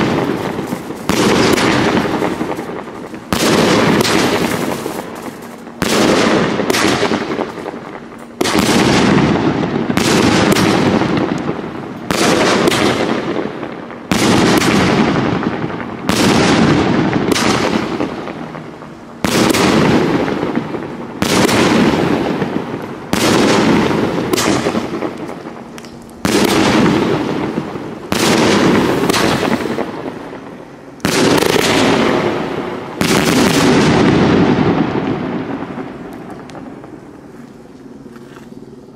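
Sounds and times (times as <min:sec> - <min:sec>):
firework bangs: 0:00.0 - 0:37.3
firework bursts crackling: 0:00.0 - 0:37.7.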